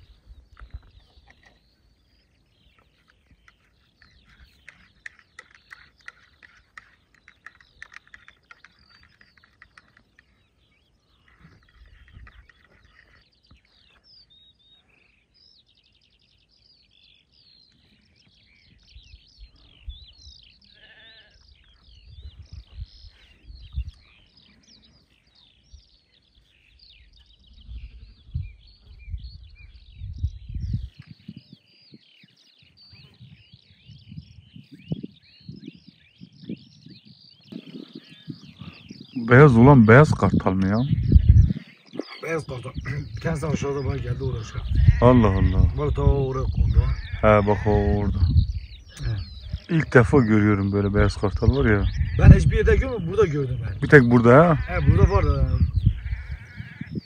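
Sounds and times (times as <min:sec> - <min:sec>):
small birds chirping: 0:00.0 - 0:57.0
sheep bleating: 0:20.8 - 0:21.4, 0:44.0 - 0:45.8, 0:46.5 - 0:48.1, 0:54.0 - 0:57.0.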